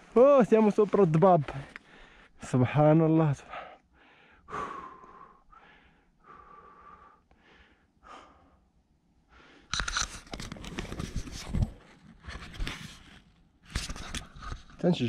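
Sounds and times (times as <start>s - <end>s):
heavy breathing: 1.6s - 2.4s, 3.4s - 9.8s
camera handling against microphone: 9.7s - 14.8s.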